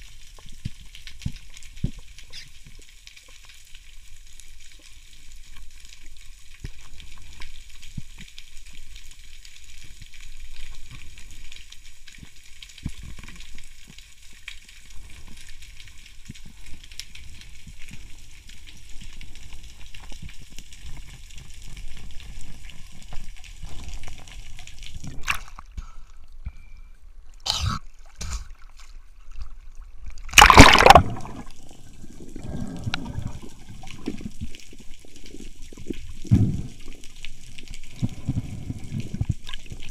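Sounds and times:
water splashing rush: 0:30.3 - 0:31.6
low gurgling: 0:30.3 - 0:37.2
underwater crackling hiss: 0:31.2 - 0:39.9.

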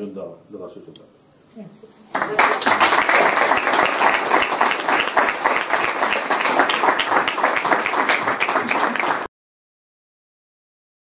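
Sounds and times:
people applauding: 0:02.1 - 0:09.3.

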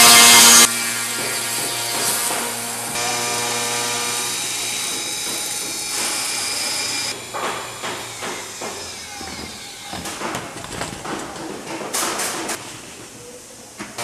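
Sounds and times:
machine hiss with high whine: 0:00.0 - 0:10.0
wood knocking and clattering: 0:07.4 - 0:12.6.

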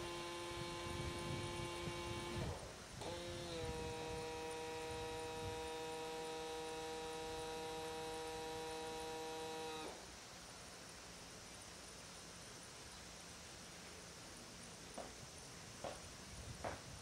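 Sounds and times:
electric starter motor whining: 0:00.0 - 0:10.0.

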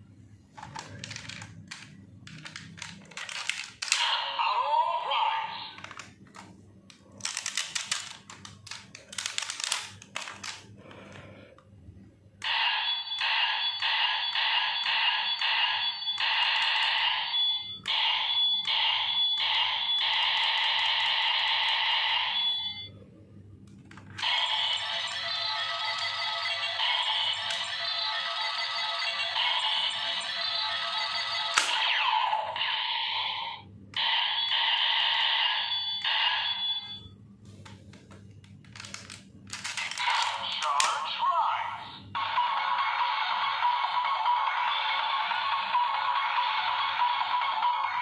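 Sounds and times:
plastic toy clicks: 0:00.6 - 0:04.0, 0:05.7 - 0:10.6, 0:16.2 - 0:17.0, 0:31.5 - 0:31.7, 0:37.9 - 0:41.0
toy electronic sound effects: 0:12.4 - 0:22.9, 0:24.2 - 0:37.0, 0:38.8 - 0:48.0
harsh pulsing electronic tone: 0:24.2 - 0:36.9.

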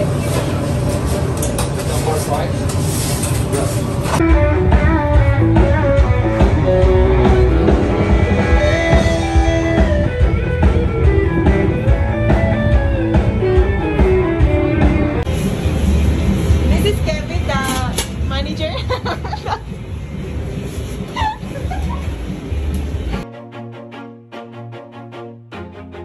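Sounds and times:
guitar melody: 0:04.2 - 0:15.3
steady beat: 0:04.2 - 0:17.5.

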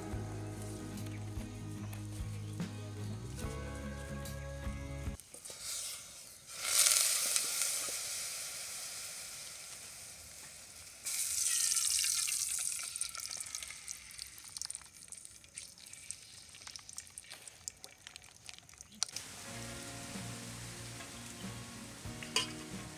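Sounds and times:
oil popping and crackling: 0:05.2 - 0:22.9
oil sizzling in hot pot: 0:05.2 - 0:22.9.

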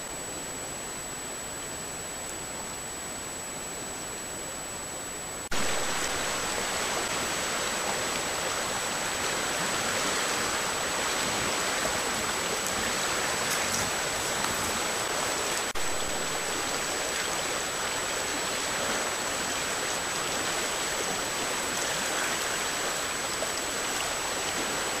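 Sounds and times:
high whine: 0:00.0 - 0:20.1
creek water flowing: 0:05.5 - 0:25.0.

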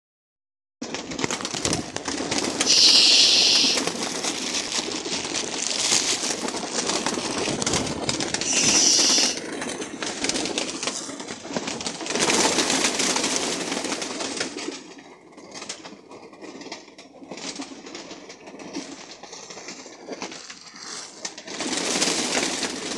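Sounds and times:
pigeons flapping wings: 0:00.8 - 0:22.9
pigeons cooing: 0:02.4 - 0:04.1, 0:08.4 - 0:09.4.

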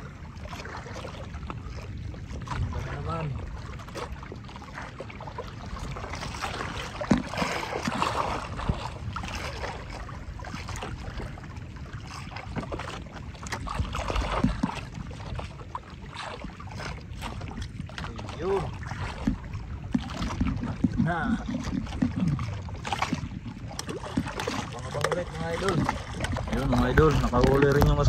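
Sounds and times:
water lapping against boat hull: 0:00.0 - 0:28.0
knocks on boat: 0:06.8 - 0:09.0, 0:13.5 - 0:15.0, 0:18.8 - 0:28.0.

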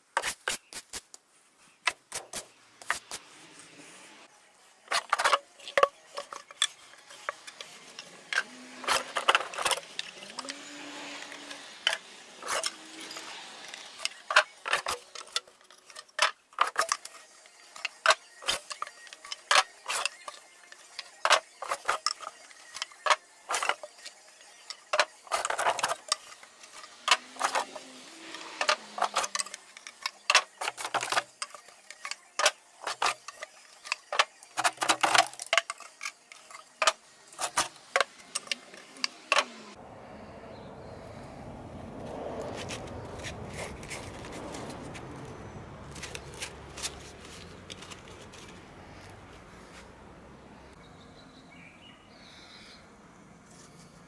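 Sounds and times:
clatter of hard objects: 0:04.9 - 0:10.6, 0:24.9 - 0:39.5.

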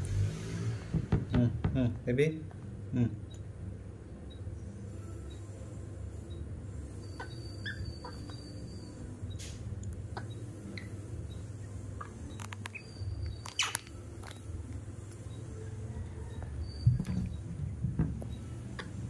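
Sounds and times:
baby monkeys squeaking: 0:07.0 - 0:09.1, 0:10.2 - 0:14.4.

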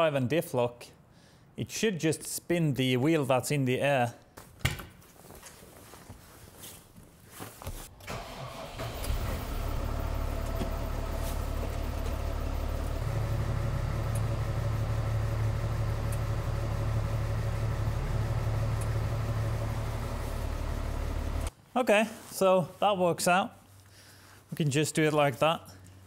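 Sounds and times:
tractor engine cranking: 0:08.0 - 0:21.5
tractor engine running: 0:08.0 - 0:21.5.

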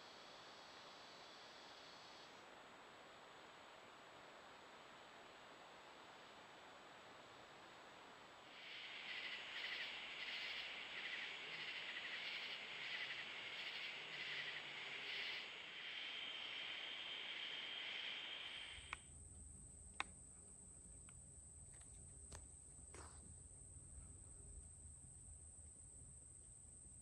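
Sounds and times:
rhythmic high-pitched chirping: 0:08.6 - 0:18.9
sharp clicks: 0:18.6 - 0:19.0.

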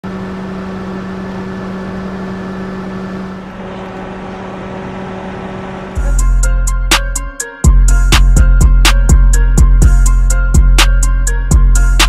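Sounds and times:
motor vehicle humming: 0:00.0 - 0:07.2.

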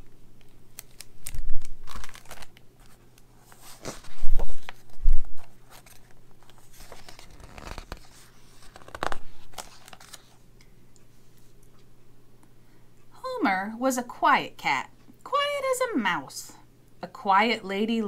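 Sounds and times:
book pages turning: 0:00.8 - 0:10.4
pages thumping down: 0:03.6 - 0:10.3.

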